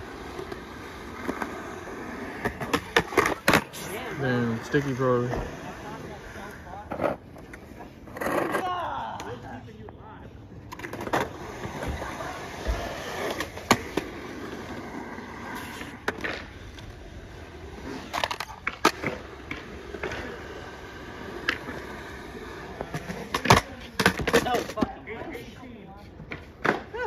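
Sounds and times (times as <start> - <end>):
skateboard wheels rolling on concrete: 0.0 - 27.0
skateboard tail clacks: 18.0 - 20.4.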